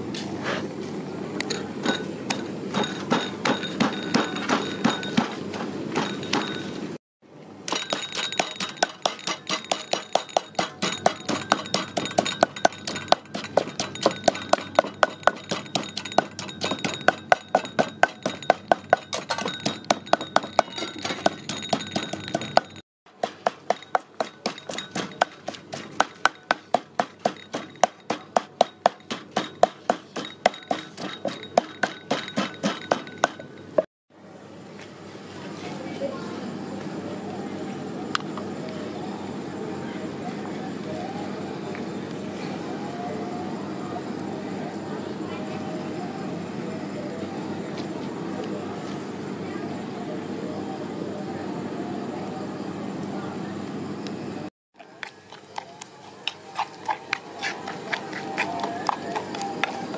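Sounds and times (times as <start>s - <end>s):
wooden pestle pounding in mortar: 1.8s - 6.6s, 7.7s - 33.6s, 54.8s - 59.9s.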